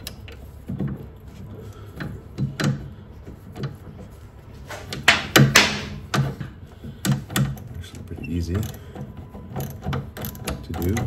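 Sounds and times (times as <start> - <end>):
metal clunks: 4.6 - 11.0.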